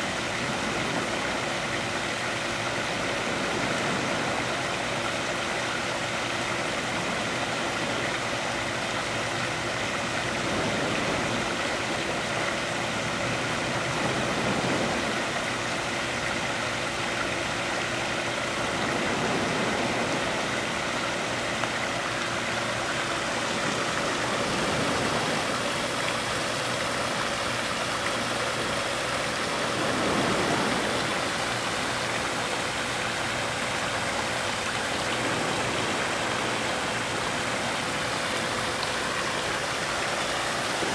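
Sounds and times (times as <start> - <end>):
faint steady hum: 0.0 - 40.9
small waves washing ashore: 0.0 - 40.9.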